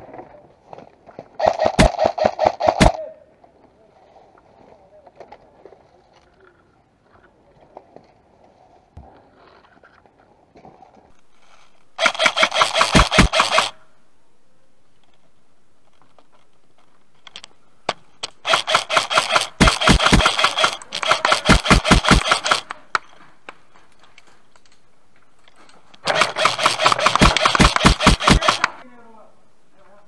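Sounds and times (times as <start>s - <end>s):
airsoft gun firing bursts: 1.4s - 3.0s, 12.0s - 13.8s, 18.4s - 22.8s, 26.0s - 28.8s.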